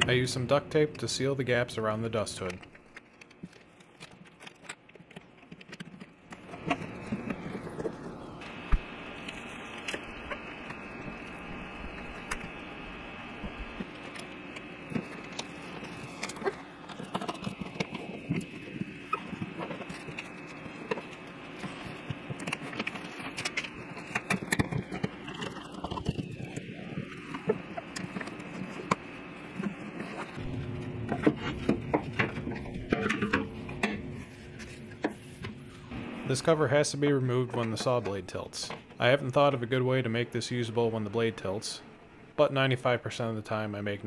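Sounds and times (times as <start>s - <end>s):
steady hum: 0.0s - 44.0s
tape clicks and crinkles: 2.0s - 12.6s, 13.4s - 30.5s.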